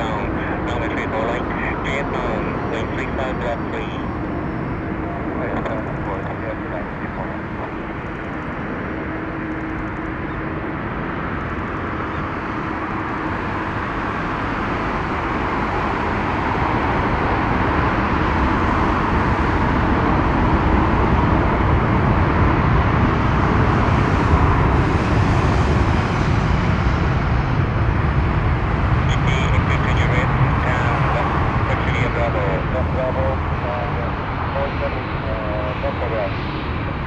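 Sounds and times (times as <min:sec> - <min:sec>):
deep rumble: 0:00.0 - 0:37.0
jet engine roar: 0:00.0 - 0:37.0.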